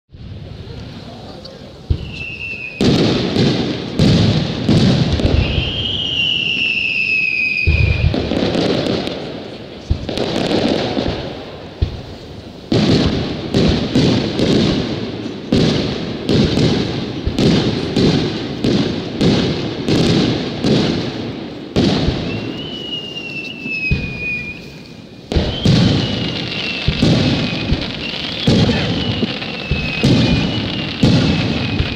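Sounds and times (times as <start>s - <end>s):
firework bangs and booms: 0.1s - 31.9s
firework whistles: 0.2s - 14.8s, 15.4s - 31.9s.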